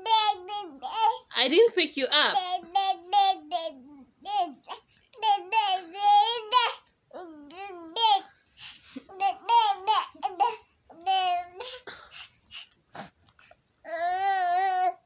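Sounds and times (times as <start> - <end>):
baby fussing and whining: 0.0 - 1.3, 2.3 - 15.0.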